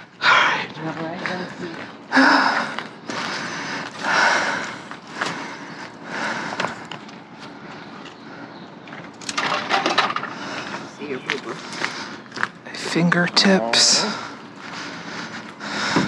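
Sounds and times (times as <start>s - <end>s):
rustling and scraping of trash: 9.0s - 10.7s.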